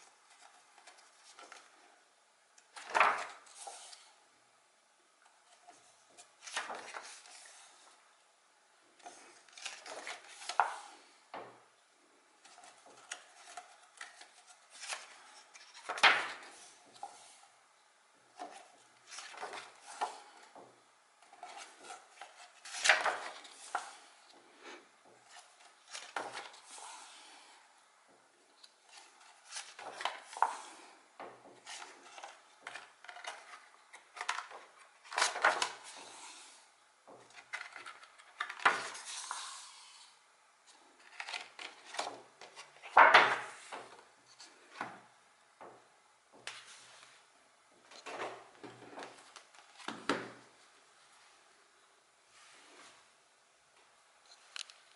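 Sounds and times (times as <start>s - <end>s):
book pages turning: 0.0s - 1.8s, 2.6s - 4.2s, 5.3s - 8.0s, 9.0s - 11.2s, 12.4s - 17.5s, 18.3s - 20.6s, 21.2s - 27.6s, 28.5s - 44.9s.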